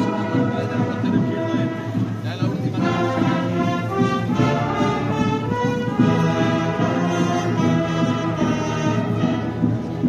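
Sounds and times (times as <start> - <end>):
brass band playing march: 0.0 - 10.0.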